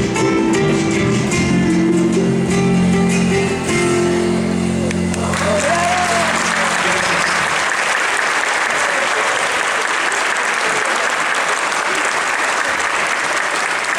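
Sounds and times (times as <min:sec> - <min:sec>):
audience applauding: 0:04.8 - 0:13.9.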